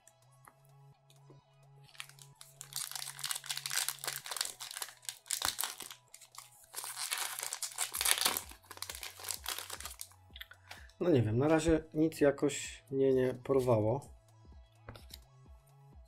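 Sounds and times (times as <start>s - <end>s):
quiet background music: 0.0s - 16.0s
foil wrapper crinkling and tearing: 1.9s - 10.1s.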